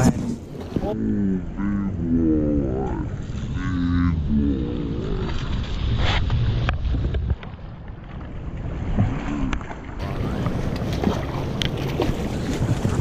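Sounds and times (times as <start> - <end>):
river water running: 7.0 - 13.0
wind buffeting microphone: 10.0 - 13.0.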